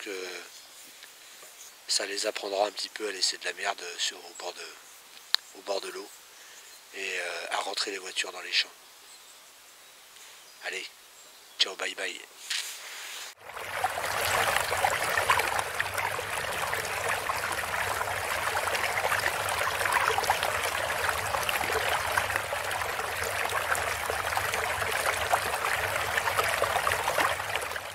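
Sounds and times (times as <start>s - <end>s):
water running in stream: 13.4s - 27.9s.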